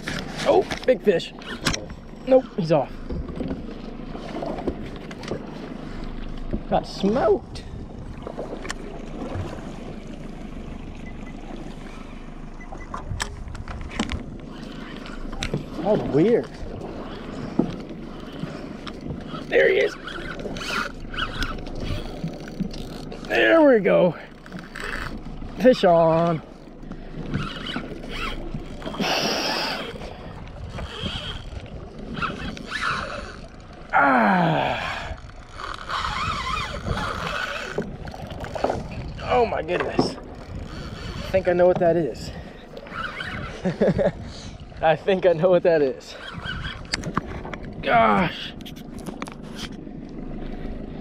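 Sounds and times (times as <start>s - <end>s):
fishing reel drag and cranking: 0.0s - 2.8s, 14.0s - 33.6s, 34.6s - 39.5s, 40.1s - 43.8s, 45.8s - 47.5s
sea noise: 0.0s - 51.0s
wind: 0.0s - 51.0s
wind on microphone: 27.3s - 33.4s, 34.9s - 44.8s, 46.2s - 47.9s
falling groan-like tone: 33.9s - 35.2s.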